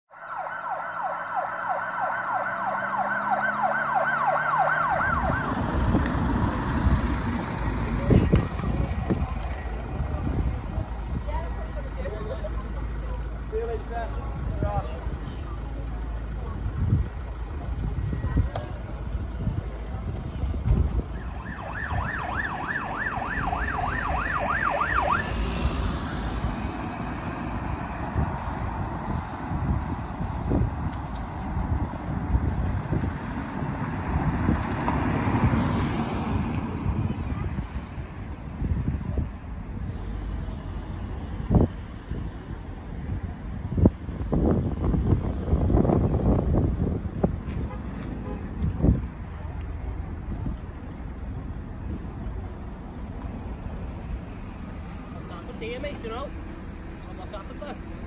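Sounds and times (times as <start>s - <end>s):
emergency siren yelping: 0.1s - 6.0s, 21.0s - 26.8s
road noise and wind rumble: 0.1s - 58.0s.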